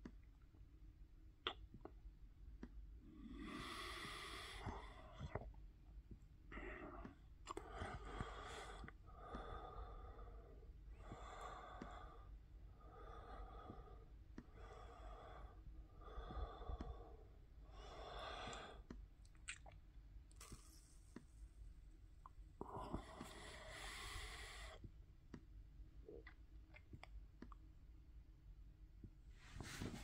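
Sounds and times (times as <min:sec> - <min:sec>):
faint breathing: 0:03.0 - 0:05.5, 0:06.5 - 0:19.0, 0:22.6 - 0:24.9.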